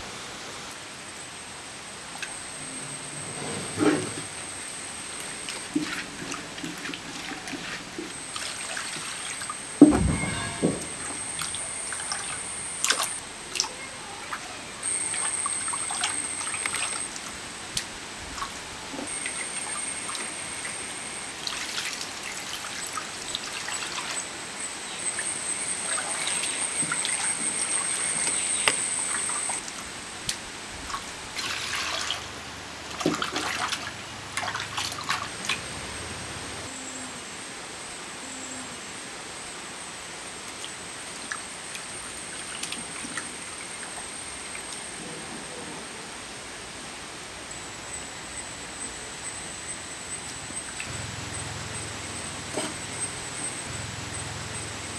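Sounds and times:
thin high whine: 0.0 - 32.7, 41.4 - 54.9
water sloshing and splashing: 3.2 - 14.4, 15.0 - 24.3, 25.8 - 35.7.

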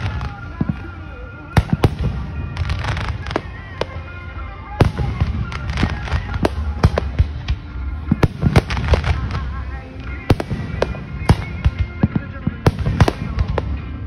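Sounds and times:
fireworks bangs and cracks: 0.0 - 4.1, 4.7 - 14.0.

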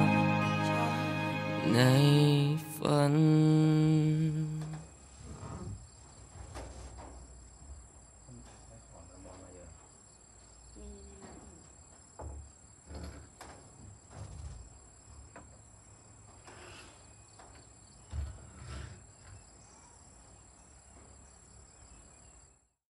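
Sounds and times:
insects droning: 7.1 - 22.7.

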